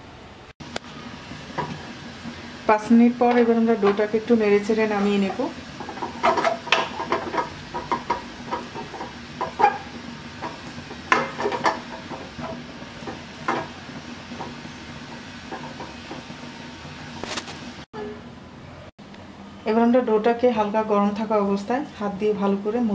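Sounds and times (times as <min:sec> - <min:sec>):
wooden spatula scraping pan: 0:04.8 - 0:17.4
spatula knocking against pan: 0:05.3 - 0:13.8.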